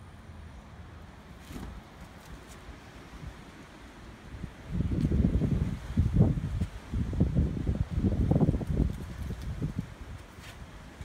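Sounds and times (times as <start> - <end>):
wind buffeting microphone: 4.3 - 11.0.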